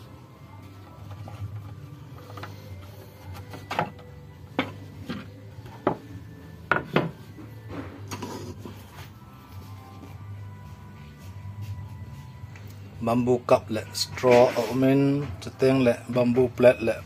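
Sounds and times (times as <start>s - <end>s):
bamboo dishes knocking: 6.7s - 7.2s.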